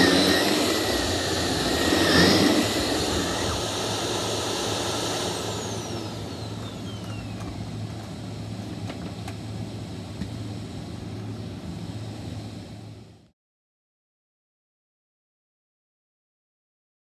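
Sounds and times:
vacuum cleaner running: 0.0 - 13.1.

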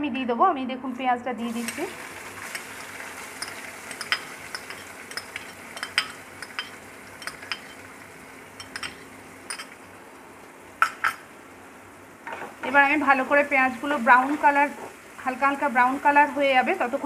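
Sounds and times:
onion sizzling in hot oil: 1.4 - 17.0
oil popping and crackling: 1.6 - 9.8.

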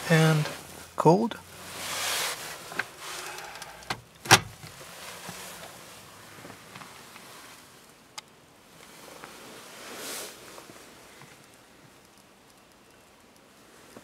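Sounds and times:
faint handling noise in car: 2.3 - 7.4.

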